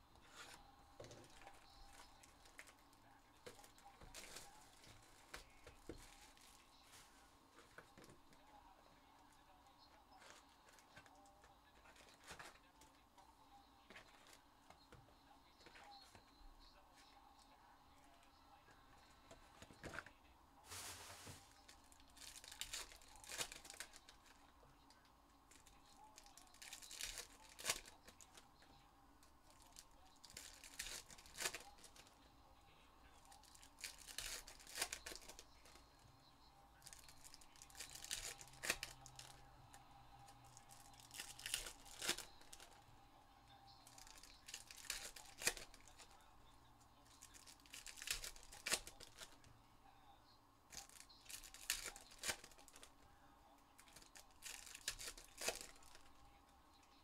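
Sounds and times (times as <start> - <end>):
card pack wrappers tearing: 20.7 - 24.4, 25.5 - 28.4, 29.6 - 32.1, 33.3 - 35.8, 36.8 - 39.4, 40.6 - 42.8, 43.8 - 46.2, 47.2 - 49.4, 50.7 - 52.9, 53.8 - 56.1.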